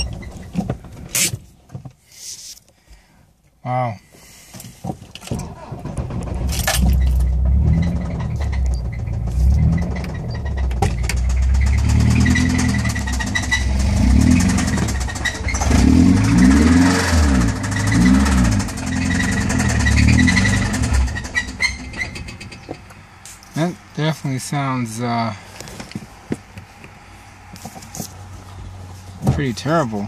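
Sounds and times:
car engine revving: 0:05.5 - 0:23.0.

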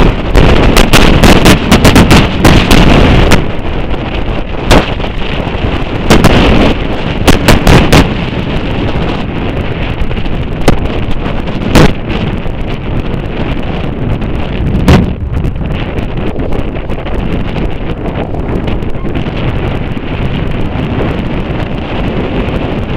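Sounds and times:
wind buffeting microphone: 0:00.0 - 0:22.9.

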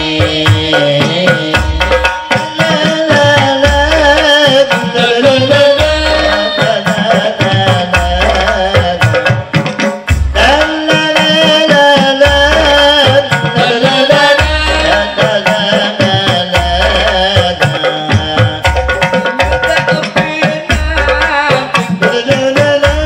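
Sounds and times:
frame drums playing: 0:00.0 - 0:23.0
person singing ornamented melody: 0:02.4 - 0:08.8.

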